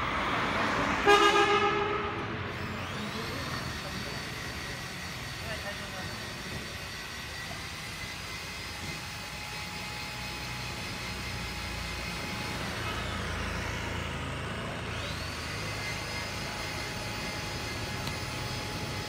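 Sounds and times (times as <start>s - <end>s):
motor vehicle passing: 0.0s - 3.8s
road traffic: 0.0s - 19.0s.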